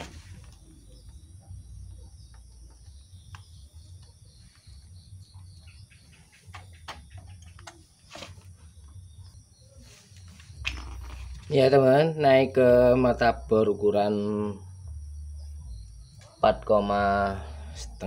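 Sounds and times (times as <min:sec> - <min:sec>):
insects chirping: 0:00.0 - 0:18.0.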